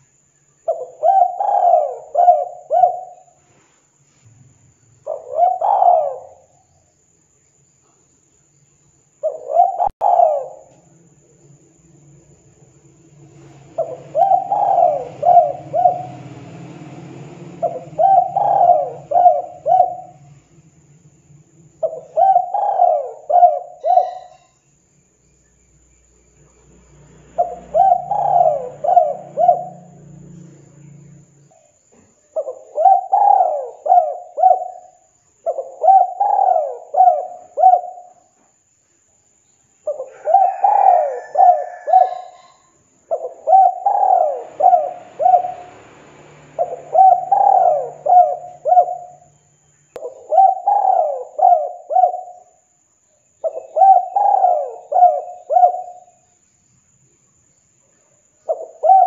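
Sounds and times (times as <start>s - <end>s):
dove cooing: 0.7s - 3.4s, 5.1s - 6.6s, 9.2s - 10.8s, 13.3s - 20.6s, 21.8s - 24.5s, 27.4s - 30.9s, 32.4s - 38.3s, 39.9s - 45.9s, 46.5s - 49.3s, 50.0s - 52.6s, 53.4s - 56.2s, 58.5s - 59.0s.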